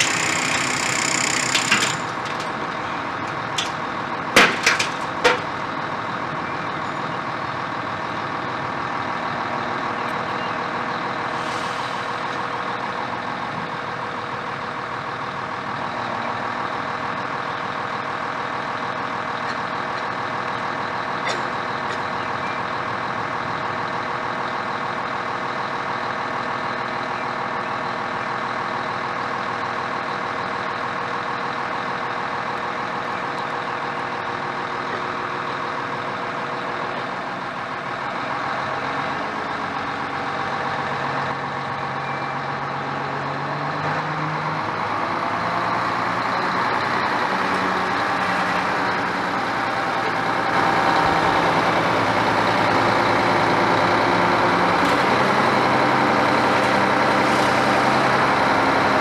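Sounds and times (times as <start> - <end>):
heavy machinery engine drone: 0.0 - 59.0.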